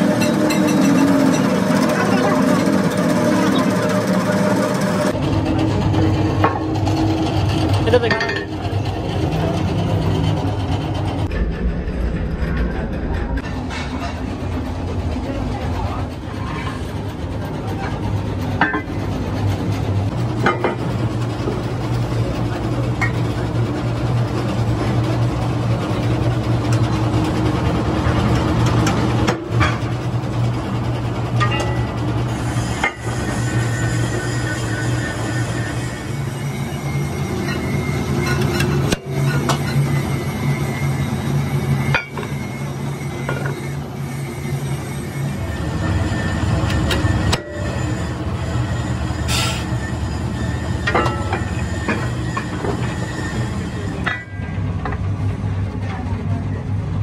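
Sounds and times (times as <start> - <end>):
rotary shear humming: 0.0 - 56.8
metal rim clanking on press: 54.0 - 55.0.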